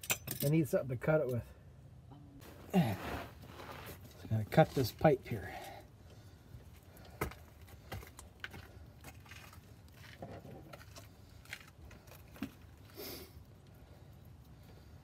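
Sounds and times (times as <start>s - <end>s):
metallic clicks and rattles: 0.0s - 0.6s.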